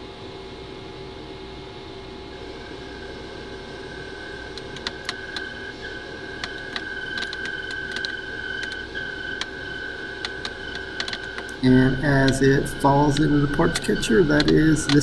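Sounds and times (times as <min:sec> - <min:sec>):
lathe hum with high whine: 0:00.0 - 0:15.0
sharp ticks: 0:06.4 - 0:08.8, 0:10.2 - 0:11.6, 0:12.2 - 0:15.0.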